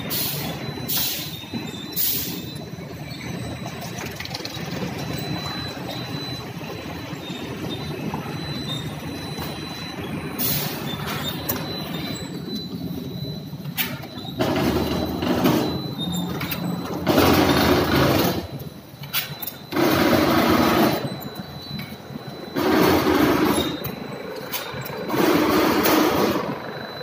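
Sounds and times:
bottle-capping machine hum: 0.0s - 27.0s
machine cycling noisily: 0.0s - 27.0s.

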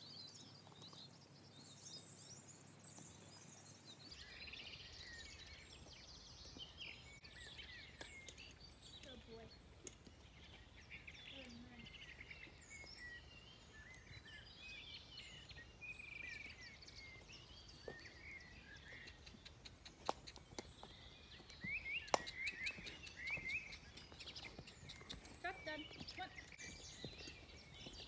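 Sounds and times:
songbirds chirping and singing: 0.0s - 28.0s
horse hooves clicking and knocking: 18.8s - 28.0s.

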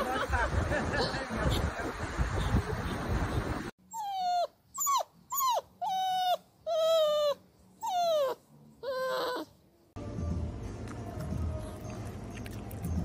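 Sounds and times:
puppy whining: 3.8s - 9.6s.

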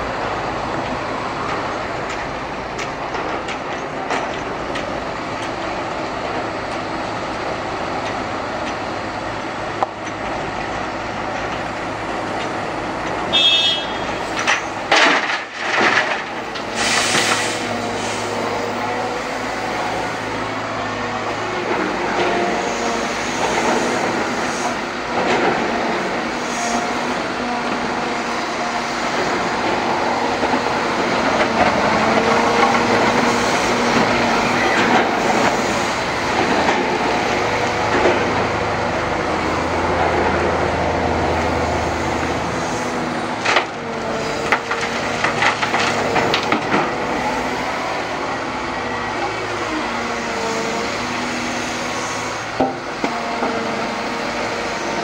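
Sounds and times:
excavator engine and hydraulics: 0.0s - 55.0s
soil and stones clattering into truck: 14.1s - 18.0s, 43.2s - 47.1s.

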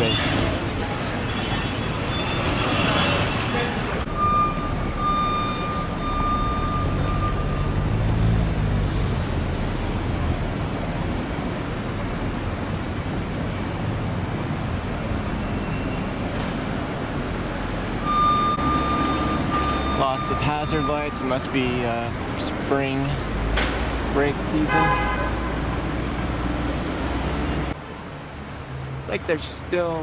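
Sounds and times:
road traffic engine rumble: 0.0s - 30.0s.

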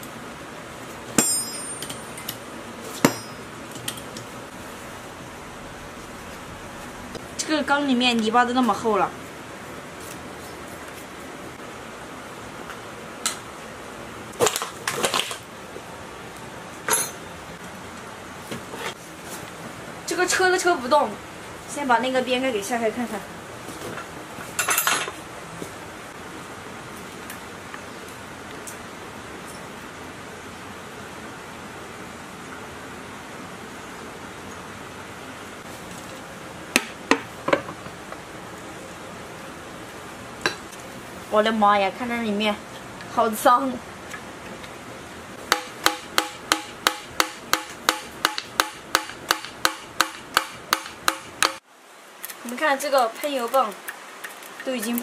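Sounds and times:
steady background hiss: 0.0s - 55.0s
metal tools clinking on workbench: 1.2s - 2.4s, 16.9s - 17.2s.

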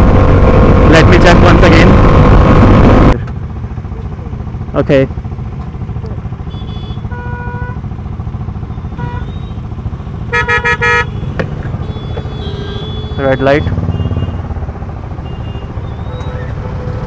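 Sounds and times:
wind rumble: 0.0s - 3.2s
motorcycle engine: 0.0s - 17.0s
vehicle horns honking: 6.4s - 7.9s, 8.9s - 9.6s, 10.2s - 14.5s, 15.2s - 16.5s.

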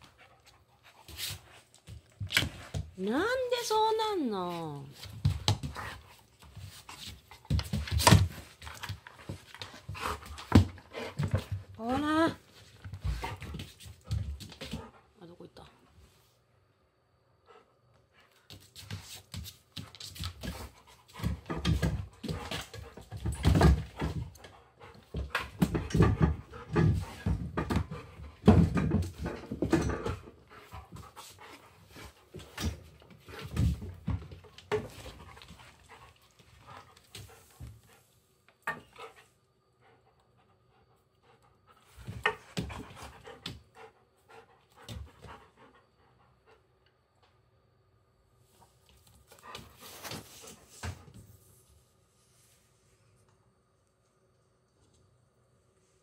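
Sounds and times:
dog panting: 0.0s - 3.0s, 8.4s - 11.8s, 19.2s - 38.2s, 38.8s - 46.8s.

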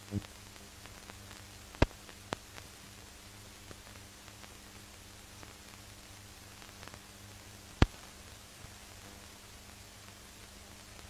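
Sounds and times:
faint crackles: 0.0s - 11.0s
film hiss: 0.0s - 11.0s
sharp pops: 7.8s - 8.1s.

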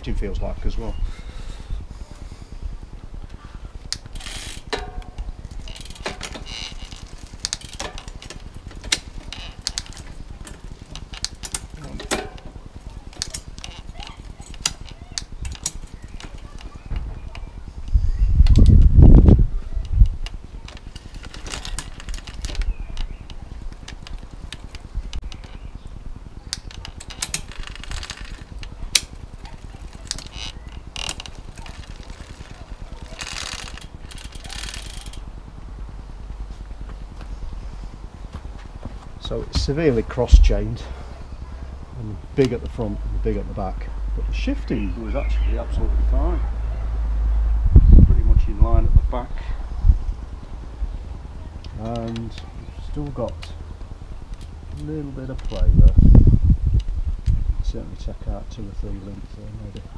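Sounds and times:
bicycle chain clicking over sprockets: 2.8s - 43.8s, 49.4s - 56.0s.

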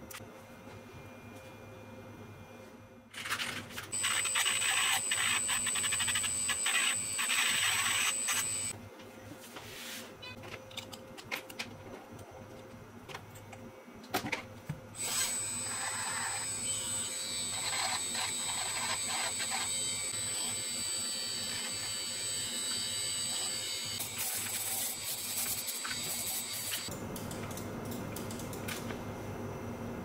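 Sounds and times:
rotary tool high whine: 3.9s - 8.8s, 15.0s - 26.9s.

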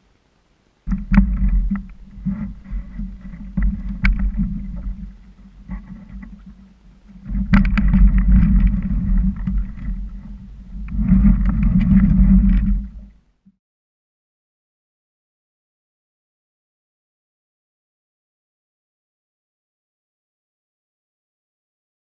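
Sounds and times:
wind noise: 0.8s - 13.2s
water rumbling under boat: 0.9s - 13.3s.

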